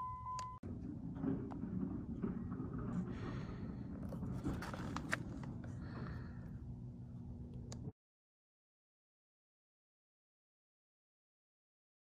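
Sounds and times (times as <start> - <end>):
phone handling rumble: 0.6 - 6.4.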